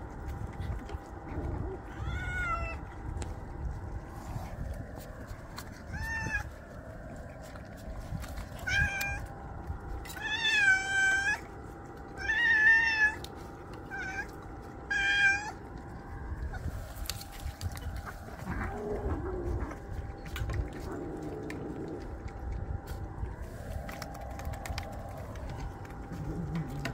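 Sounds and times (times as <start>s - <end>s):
cats meowing: 1.3s - 3.0s, 5.6s - 6.7s, 8.4s - 9.4s, 10.0s - 16.6s, 17.7s - 22.2s.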